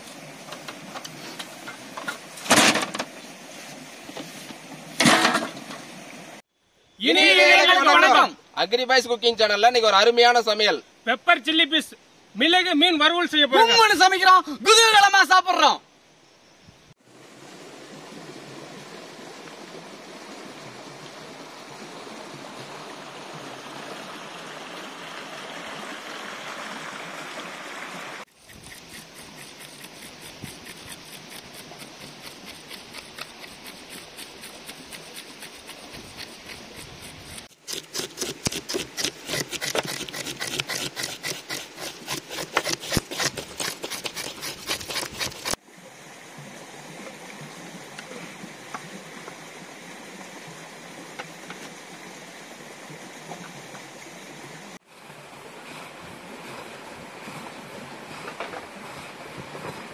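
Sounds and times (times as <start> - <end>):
small stream running: 0.0 - 59.9
knife scraping fish: 28.4 - 45.6
stone roller grinding on stone: 28.4 - 45.6.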